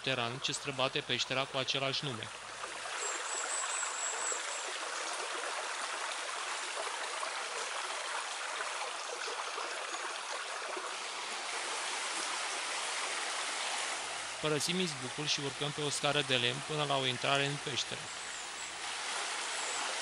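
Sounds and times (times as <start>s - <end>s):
stream rushing over stones: 1.4s - 20.0s
thin high whistle: 3.0s - 4.7s.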